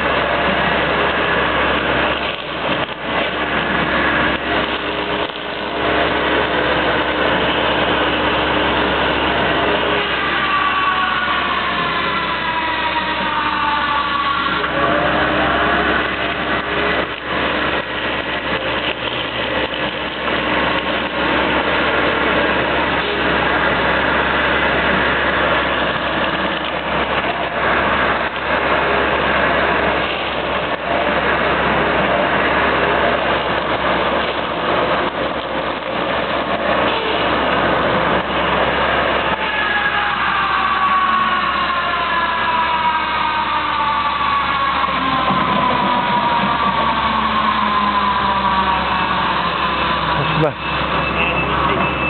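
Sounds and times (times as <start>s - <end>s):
excavator engine drone: 0.0s - 52.0s
high hydraulic whine: 0.0s - 52.0s.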